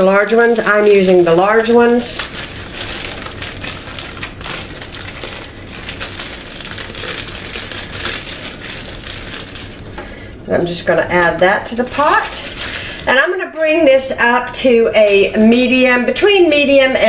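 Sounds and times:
plastic bag crinkling: 0.0 - 10.0, 11.6 - 14.0.

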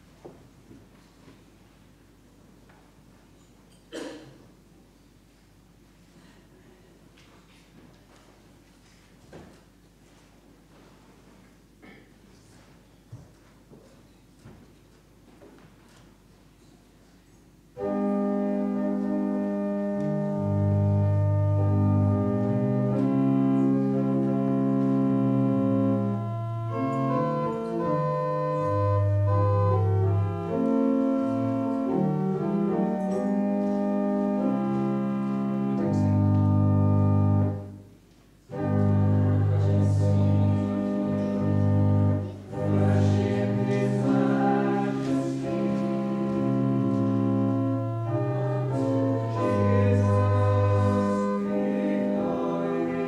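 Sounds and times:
church organ chords: 17.7 - 53.0.

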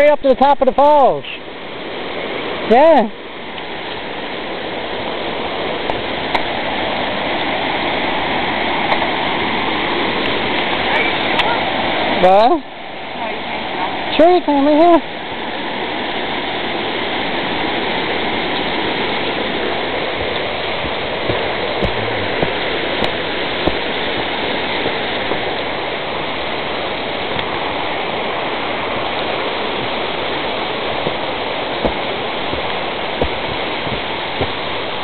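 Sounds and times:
waterfall rushing: 0.0 - 35.0
short knocks: 21.2 - 23.8.

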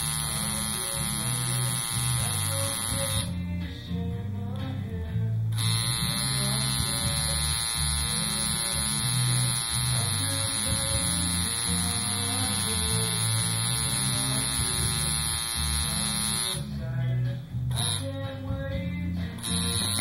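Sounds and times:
tattoo machine buzzing: 0.0 - 3.4, 5.5 - 16.7, 17.7 - 18.2, 19.4 - 20.0
background music with bass: 0.0 - 20.0.

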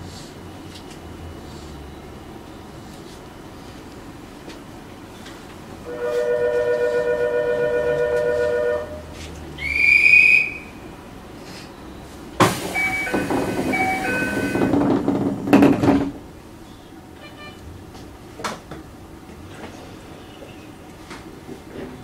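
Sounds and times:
short rising whistle: 9.6 - 10.9, 12.7 - 14.6
loud noisy rumble: 12.3 - 20.0
two-note signal tone: 12.8 - 14.7.

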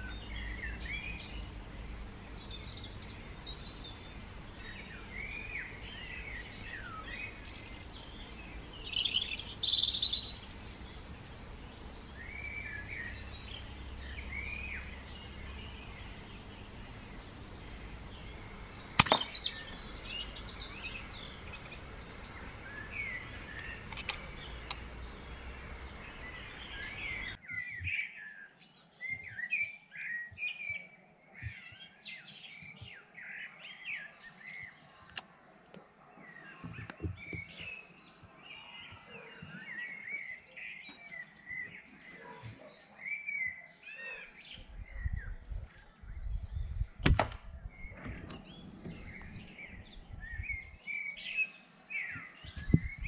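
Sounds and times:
birds chirping and singing: 0.0 - 53.0
air rifle shot: 18.9 - 19.9, 47.0 - 48.3.

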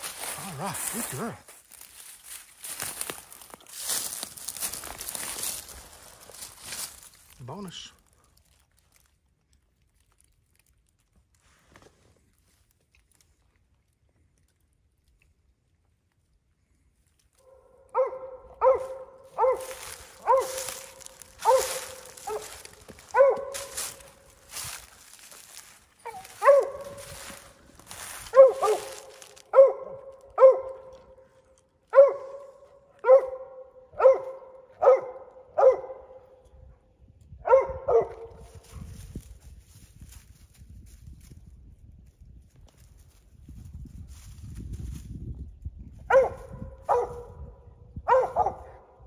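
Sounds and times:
dry leaves crunching underfoot: 0.0 - 12.7, 18.2 - 33.2, 42.6 - 45.2
dog barking: 17.4 - 24.2, 26.0 - 27.4, 28.3 - 31.2, 31.9 - 36.4, 37.4 - 38.6, 46.1 - 48.9.

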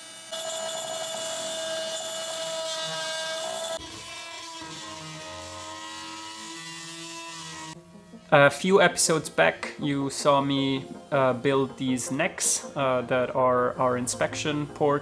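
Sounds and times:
oscillating multi-tool buzzing: 0.0 - 9.4.

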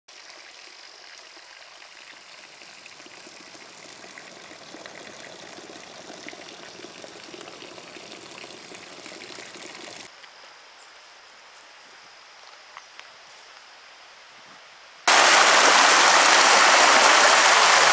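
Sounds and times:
mountain stream rushing: 15.1 - 17.9.

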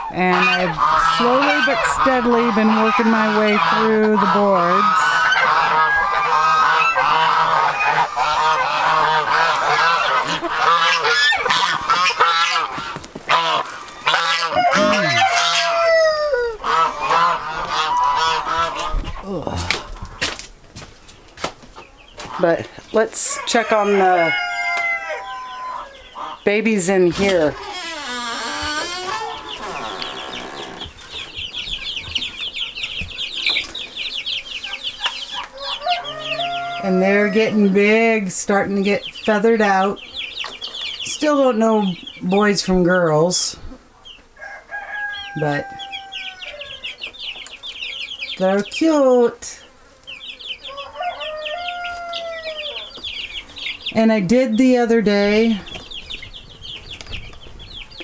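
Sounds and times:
geese honking: 0.0 - 19.9, 22.2 - 33.6, 34.2 - 40.4
chicks peeping: 0.0 - 58.0.

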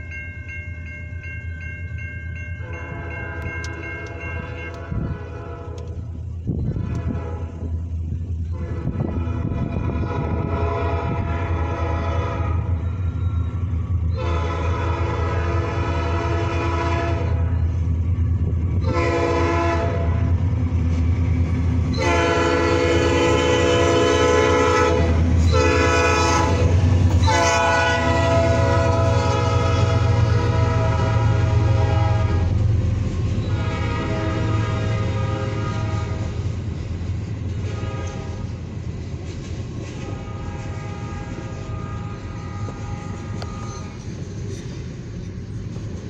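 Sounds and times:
diesel locomotive rumble: 0.0 - 46.0
locomotive horn blasts: 2.6 - 7.8, 8.5 - 13.2, 14.1 - 17.7, 18.7 - 20.4, 21.9 - 32.6, 33.4 - 36.5, 37.6 - 38.5, 40.0 - 44.1.

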